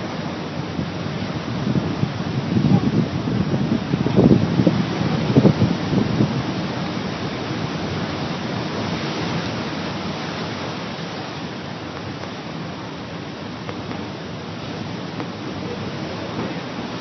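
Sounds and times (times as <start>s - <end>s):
surf rushing: 0.0s - 17.0s
wind: 0.0s - 17.0s.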